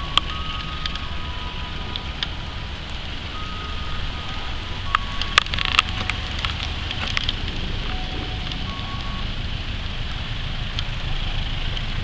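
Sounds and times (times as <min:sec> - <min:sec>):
thin squealing tones: 0:00.0 - 0:09.3
diesel locomotive engines rumbling: 0:00.0 - 0:12.0
sharp clicks and rattles: 0:01.8 - 0:09.1.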